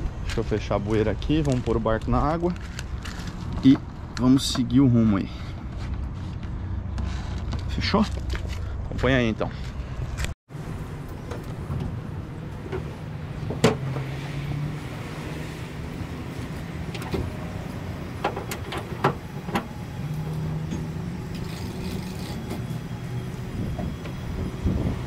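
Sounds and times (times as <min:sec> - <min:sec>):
sharp knocks and clanks: 0:12.6 - 0:14.2, 0:18.2 - 0:19.8.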